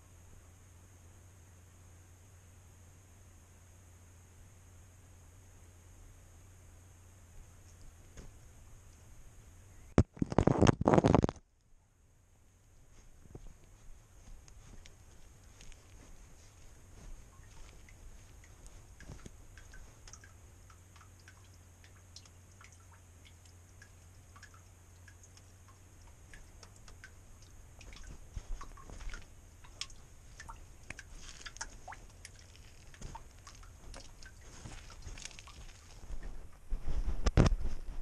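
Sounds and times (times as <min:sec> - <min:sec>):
faint low hum: 0:00.0 - 0:38.0
camera clicks and rustles: 0:10.0 - 0:11.5, 0:30.9 - 0:38.0.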